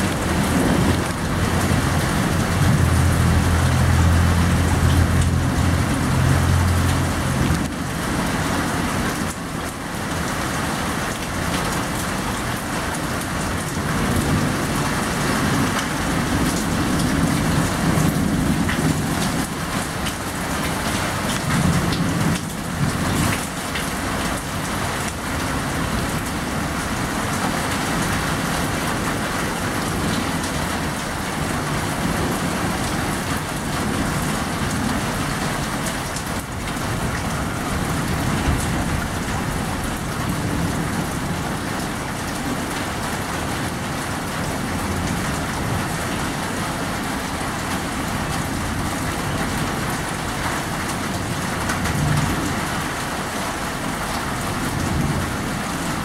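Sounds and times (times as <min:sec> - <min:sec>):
thunder rumbling: 0:00.0 - 0:08.6
steady rain falling: 0:00.0 - 0:56.0.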